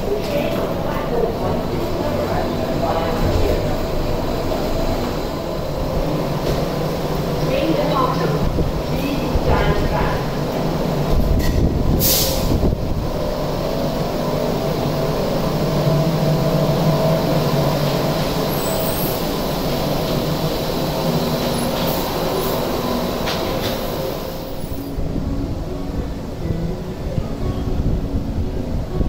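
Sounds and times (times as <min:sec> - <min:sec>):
rubber-tyred train running: 0:00.0 - 0:29.0.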